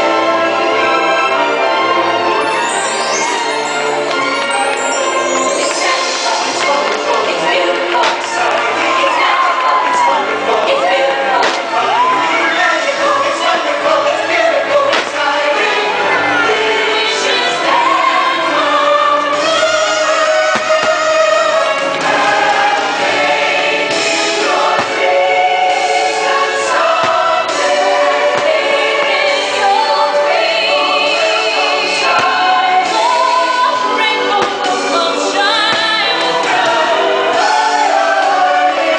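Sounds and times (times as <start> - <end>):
soundtrack music with choir: 0.0 - 38.9.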